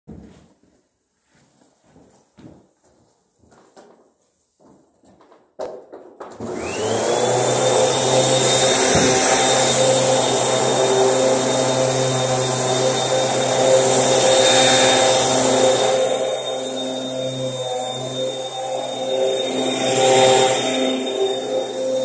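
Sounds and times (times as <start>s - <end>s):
vacuum cleaner motor whine: 6.4s - 22.0s.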